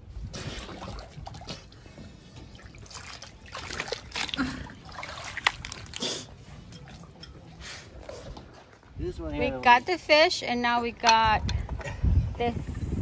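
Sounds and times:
water trickling and splashing: 0.2 - 9.8.

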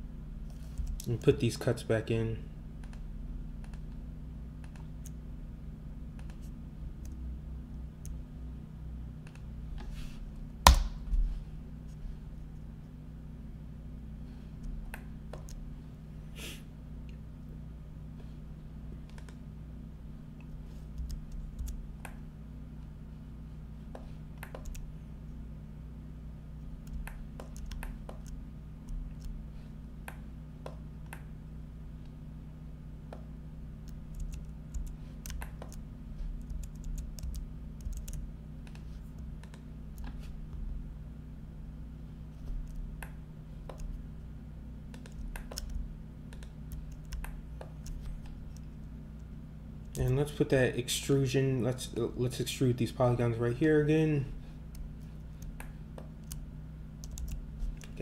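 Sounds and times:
steady low hum: 0.0 - 58.0
mouse clicks: 3.6 - 4.0, 6.2 - 7.2, 44.9 - 49.3
loud sharp knock: 10.7 - 11.0
keyboard keystrokes: 36.4 - 38.8, 44.9 - 48.6.

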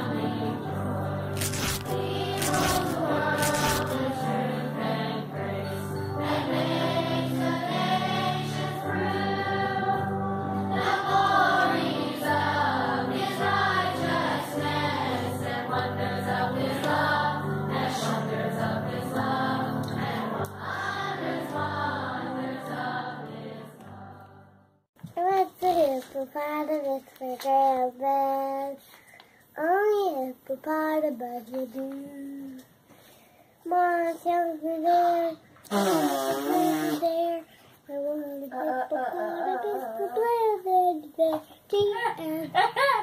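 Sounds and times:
children's choir singing a carol: 0.0 - 24.7.

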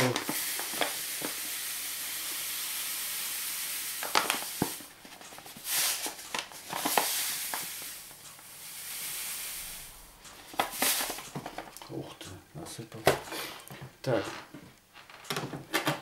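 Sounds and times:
sugar pouring hiss: 0.0 - 11.4.

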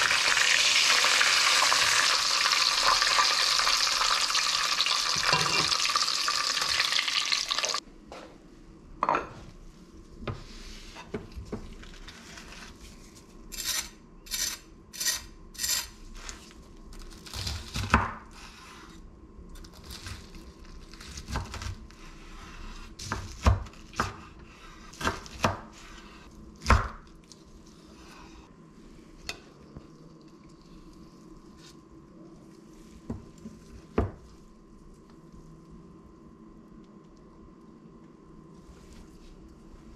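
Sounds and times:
chicken frying in hot oil: 0.0 - 7.8
faint steady hum: 0.0 - 39.9.

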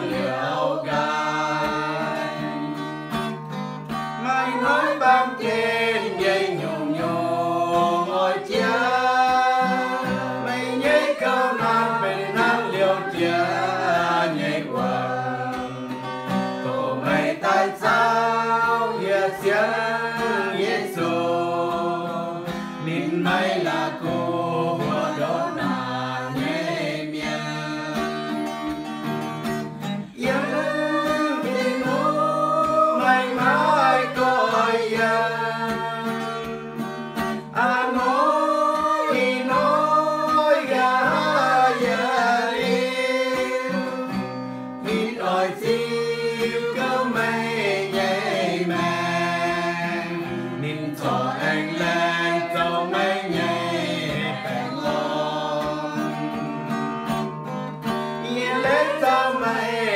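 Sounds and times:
group singing: 0.0 - 59.9
strummed acoustic guitar: 0.0 - 59.9.

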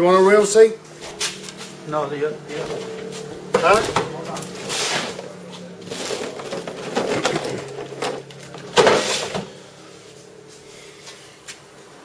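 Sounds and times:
rummaging through parts: 2.4 - 9.6.

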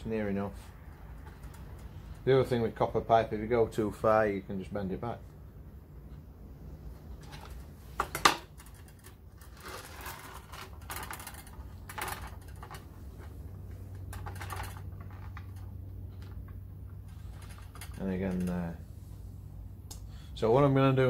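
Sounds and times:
pipe scraping and rattling: 7.2 - 18.8.

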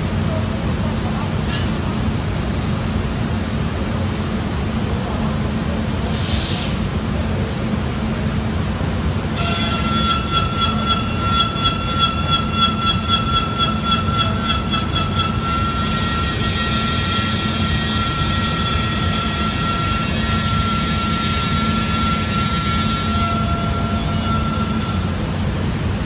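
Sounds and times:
cnc router spindle whine: 9.4 - 25.2.

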